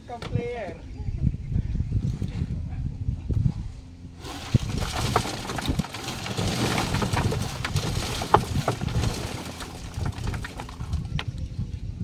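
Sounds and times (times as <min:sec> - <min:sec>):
rough scraping clatter: 0:04.2 - 0:11.5.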